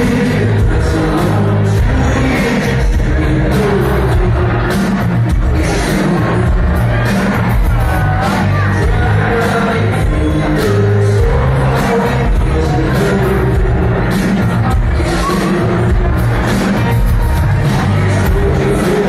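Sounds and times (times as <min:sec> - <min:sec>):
drums: 0:00.0 - 0:19.0
keyboards: 0:00.0 - 0:19.0
man singing lead vocal: 0:00.0 - 0:19.0.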